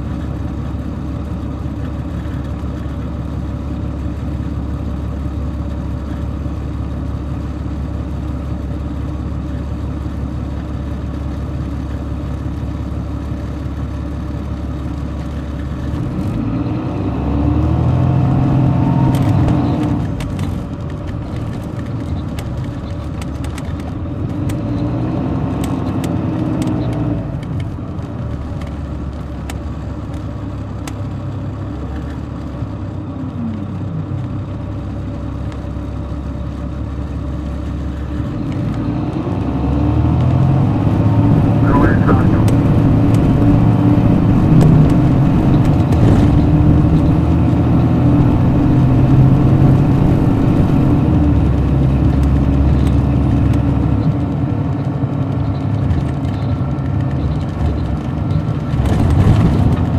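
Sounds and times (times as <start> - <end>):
diesel engine droning: 0.0 - 59.9.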